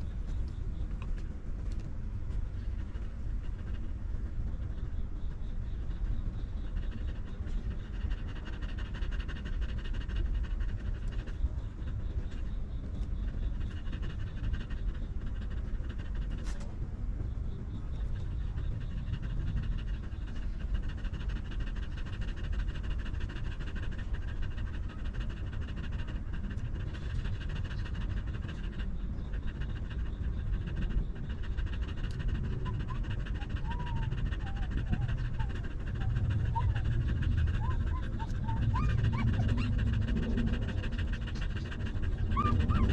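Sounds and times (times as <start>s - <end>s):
dog panting: 0.0s - 42.9s
puppies squeaking: 33.6s - 39.8s, 42.1s - 42.9s.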